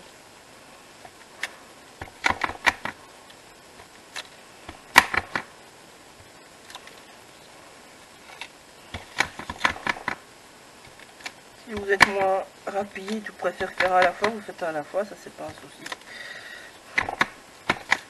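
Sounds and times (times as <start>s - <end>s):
acrylic stamp tapping: 9.0s - 10.2s, 13.6s - 14.4s, 17.0s - 18.0s.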